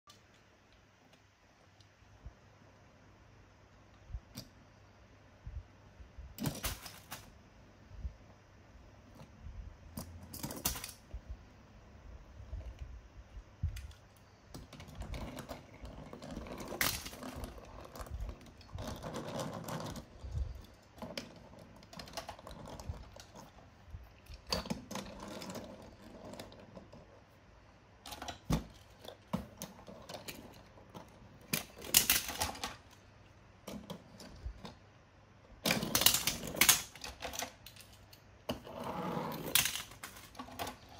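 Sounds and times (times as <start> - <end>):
toy cars clicking and clinking: 10.0 - 11.1, 14.6 - 23.6, 28.1 - 33.0, 35.6 - 38.6, 39.3 - 40.9
toy car wheels rumbling on wood: 14.5 - 23.7.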